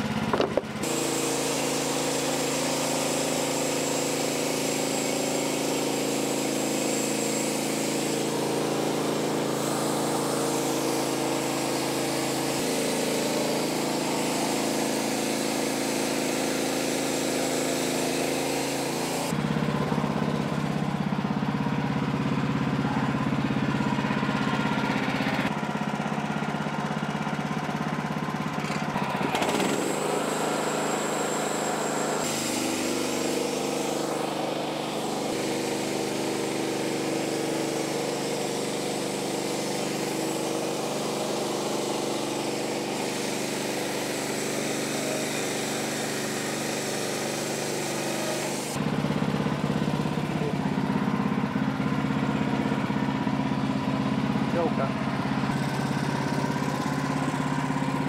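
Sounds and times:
band saw cutting log: 0.0 - 58.0
sawmill engine running: 0.0 - 58.0.

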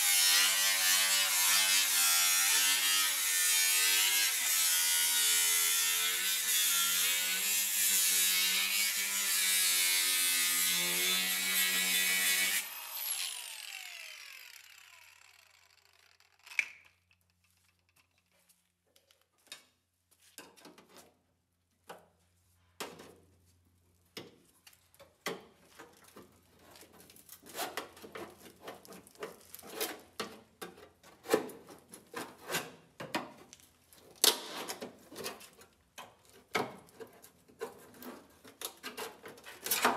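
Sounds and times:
angle grinder on steel: 0.0 - 16.6.

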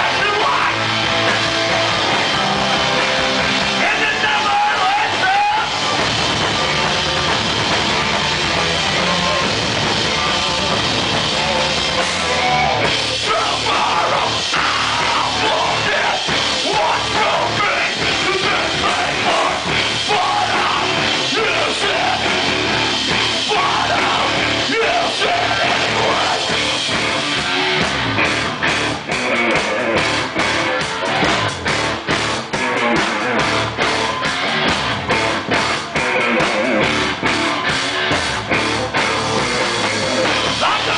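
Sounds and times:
singer yelling into microphone: 0.0 - 0.9, 3.8 - 5.8, 13.1 - 22.5, 23.3 - 26.5, 40.6 - 40.9
fast drum pounding: 0.0 - 40.9
heavy rock band playing live: 0.0 - 40.9.

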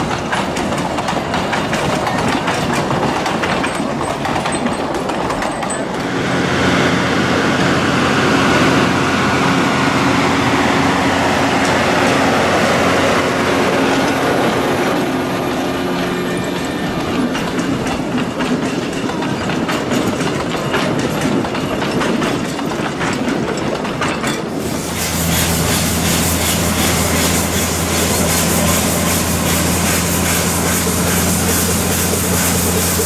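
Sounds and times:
train wheels clacking over rail joints: 0.0 - 6.6, 9.3 - 33.0
low engine hum: 6.2 - 18.0, 24.6 - 33.0
steam venting hiss: 24.6 - 33.0.

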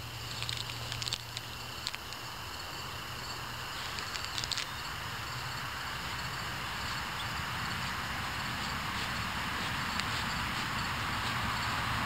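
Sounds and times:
outdoor background noise: 0.0 - 12.0
crinkling clicks of toy: 0.2 - 2.2, 3.8 - 4.8.

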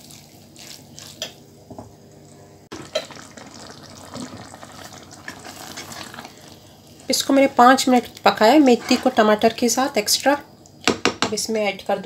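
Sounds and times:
curry simmering and bubbling: 2.7 - 9.4
spatula stirring in a pot: 2.8 - 9.9.

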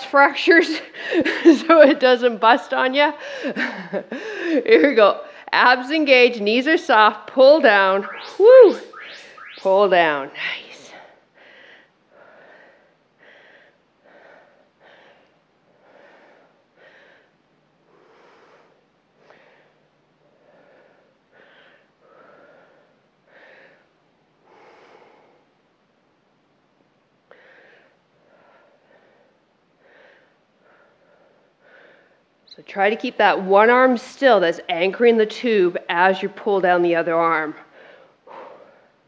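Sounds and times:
woman breathing hard: 3.2 - 4.7, 11.1 - 25.6, 27.3 - 32.4, 37.6 - 39.0.

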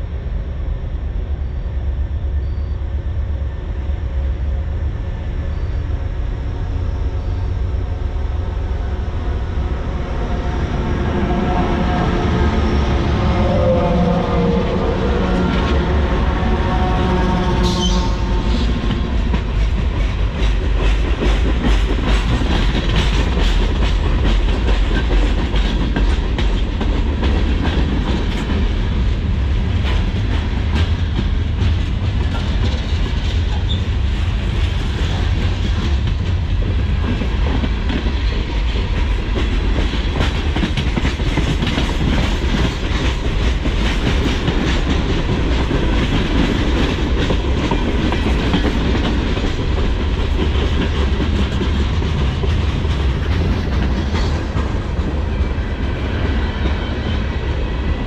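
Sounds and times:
freight train rumbling: 0.0 - 58.0
locomotive drone: 0.0 - 58.0
wheels clacking over rail joints: 18.2 - 28.7.

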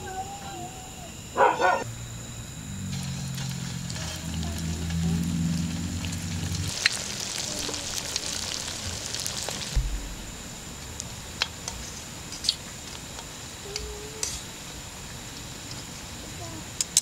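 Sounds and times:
low hum: 0.0 - 6.8, 7.5 - 13.7
oil popping: 2.9 - 11.5
spring rolls sizzling in oil: 3.0 - 9.8.

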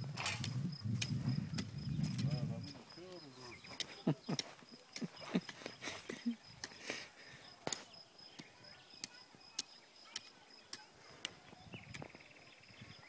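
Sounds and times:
garden sprinkler ticking: 0.4 - 7.0, 7.6 - 11.3.

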